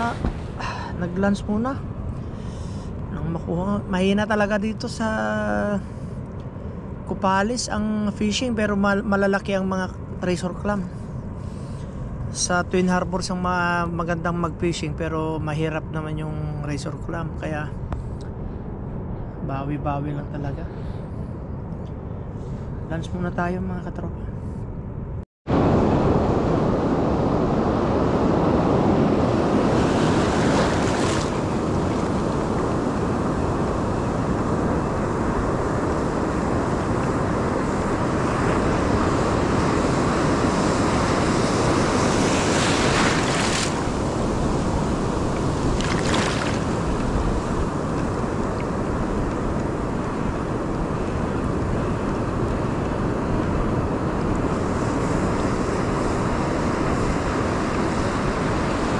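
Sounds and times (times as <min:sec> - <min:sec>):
ocean surf washing on beach: 0:00.0 - 0:06.1, 0:25.5 - 0:58.9
wind rushing over microphone: 0:00.0 - 0:58.9.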